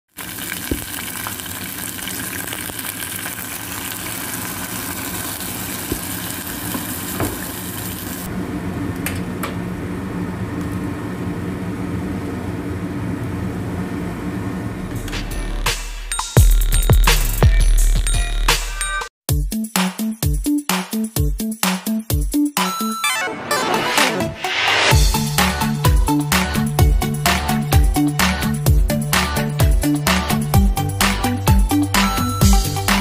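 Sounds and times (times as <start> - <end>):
water boiling: 0.1 - 8.3.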